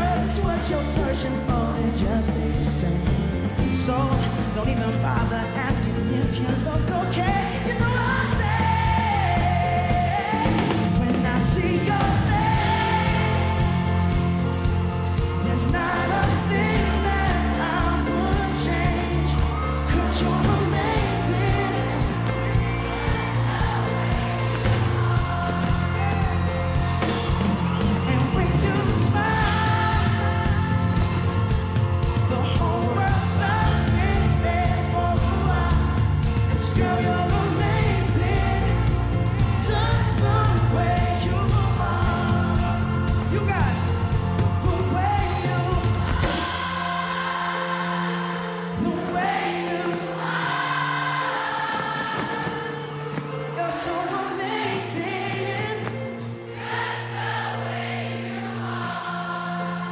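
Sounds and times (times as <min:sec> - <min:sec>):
person singing: 0:00.0 - 0:56.4
live pop band: 0:00.0 - 0:59.9.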